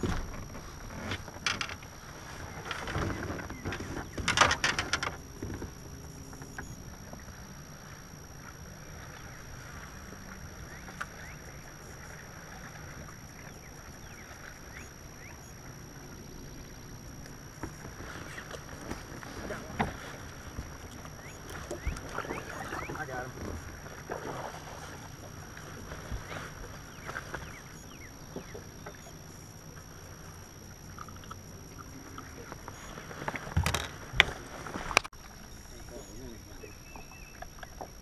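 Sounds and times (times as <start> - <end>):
high-pitched whine: 0.0 - 38.0
low rumble of water and wind: 0.0 - 38.0
low steady hum: 0.0 - 38.0
bird chirps: 21.2 - 23.1, 35.5 - 37.8.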